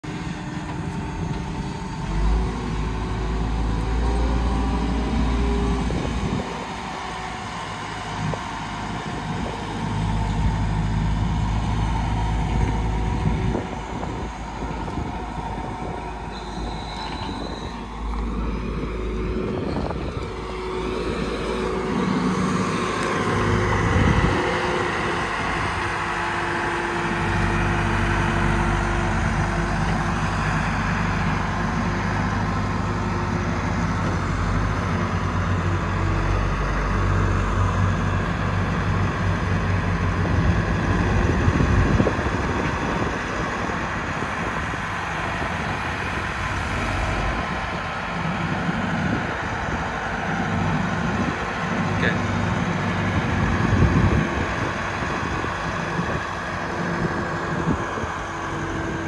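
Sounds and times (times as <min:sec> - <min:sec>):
wheel loader diesel engine: 0:00.0 - 0:59.0.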